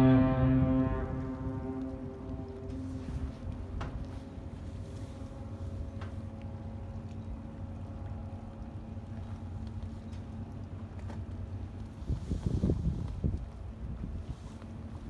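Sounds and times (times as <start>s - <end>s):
ship engines droning: 0.0s - 12.0s.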